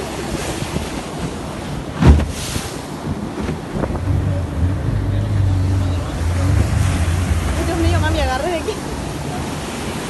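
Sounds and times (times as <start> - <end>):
boat motor low hum: 0.0 - 10.0
surf rushing along boat hull: 0.0 - 10.0
wind buffeting microphone: 0.0 - 10.0
loud thump: 2.0 - 2.4.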